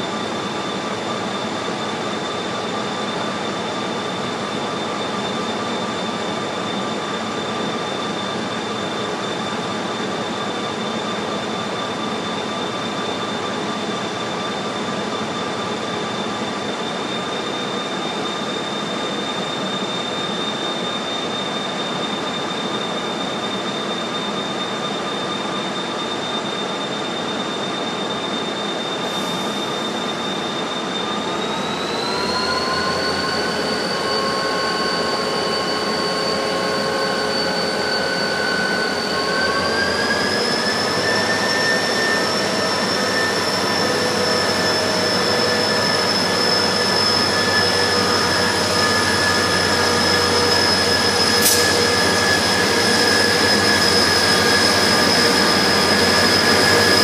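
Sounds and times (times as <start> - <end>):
diesel locomotive engine whine: 0.0 - 57.0
sharp click: 51.4 - 51.8.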